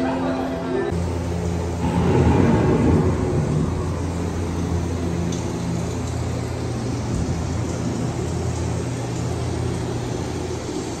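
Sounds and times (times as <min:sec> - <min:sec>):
low machine hum of ride boat: 0:00.0 - 0:11.0
rushing noise: 0:00.9 - 0:09.0.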